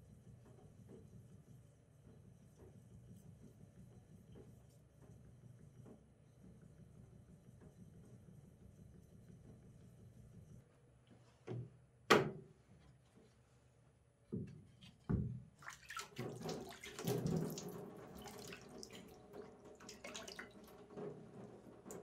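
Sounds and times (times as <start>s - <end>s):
water splashed by hand: 15.6s - 20.7s.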